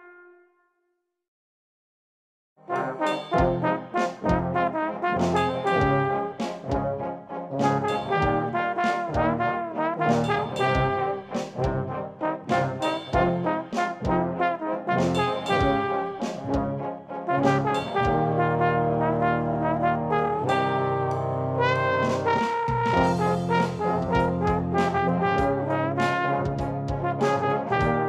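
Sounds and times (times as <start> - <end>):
trombone ensemble playing: 2.7 - 28.0
steady beat of sharp hits: 3.1 - 7.0, 7.6 - 9.4, 10.1 - 11.9, 12.5 - 14.3, 15.0 - 16.8, 22.0 - 28.0.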